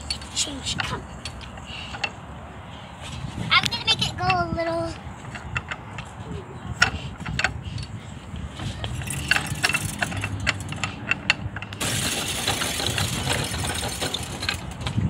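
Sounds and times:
playground spinner clicking and rattling: 0.0s - 2.3s, 3.2s - 15.0s
playground gear panel rattling: 5.2s - 6.1s, 6.7s - 15.0s.

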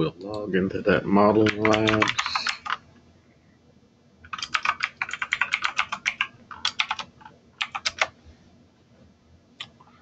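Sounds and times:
computer keyboard typing: 1.4s - 2.8s, 4.2s - 8.2s.

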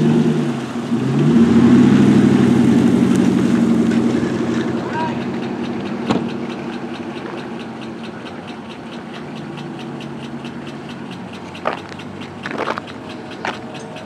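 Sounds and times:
pickup truck engine running: 0.0s - 14.0s
fast even ticking: 1.0s - 14.0s
sharp knock: 6.0s - 6.3s.

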